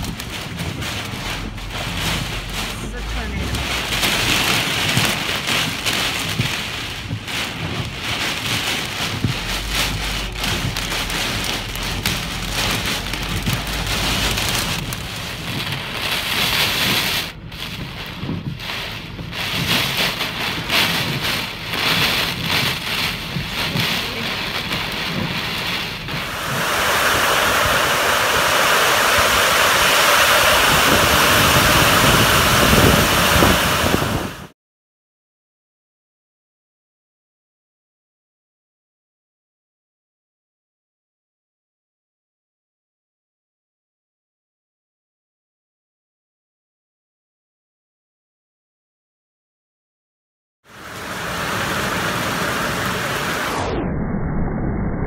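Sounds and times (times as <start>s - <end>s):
downpour on pavement: 0.0s - 34.5s, 50.6s - 53.6s
gusting wind: 0.0s - 34.5s
low thunder rumble: 0.0s - 34.5s
heavy rain: 0.0s - 34.6s, 50.7s - 53.7s.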